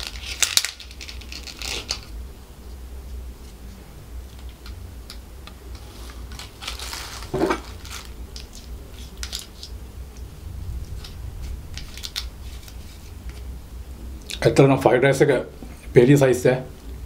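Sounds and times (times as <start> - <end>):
plastic cup and wrap crinkling: 0.0 - 2.1, 5.7 - 9.8, 10.9 - 13.4.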